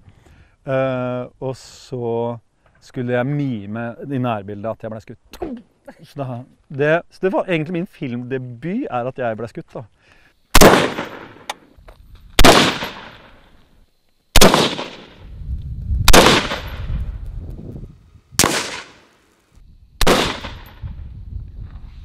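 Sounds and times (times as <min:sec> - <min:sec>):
rifle shots: 0:10.6 - 0:11.5, 0:12.4 - 0:13.4, 0:14.4 - 0:15.2, 0:16.1 - 0:16.9, 0:18.4 - 0:19.1, 0:20.0 - 0:20.8.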